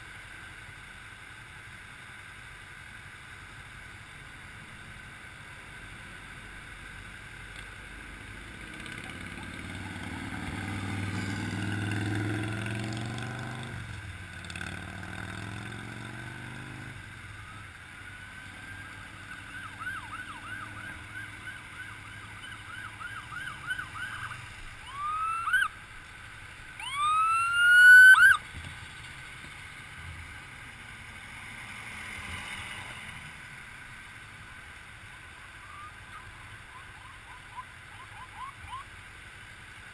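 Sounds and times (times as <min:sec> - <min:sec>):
vehicle engine rumble: 0:00.0 - 0:39.9
ambulance siren: 0:18.6 - 0:25.7, 0:26.8 - 0:28.4, 0:35.7 - 0:38.8.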